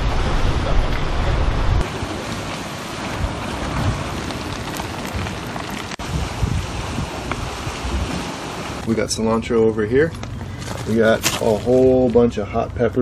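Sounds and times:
wind buffeting microphone: 0.0s - 8.9s
campfire crackling and hissing: 1.3s - 8.8s.

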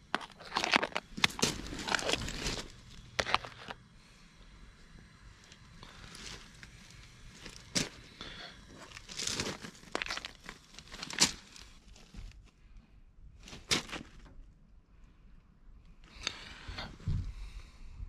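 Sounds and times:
lobster shell cracking: 0.0s - 2.6s.

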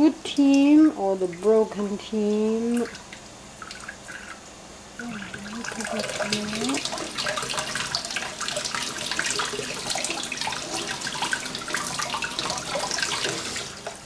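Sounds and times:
tap water running into sink: 0.3s - 4.4s, 5.0s - 14.0s
water splashing: 5.0s - 14.0s.

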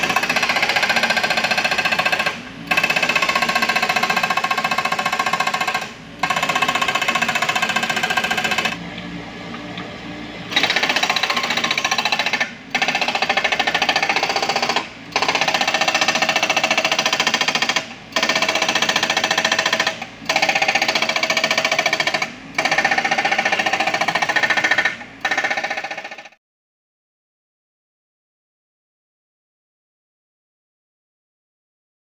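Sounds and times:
hydraulic breaker hammering rock: 0.0s - 8.8s, 10.5s - 26.4s.

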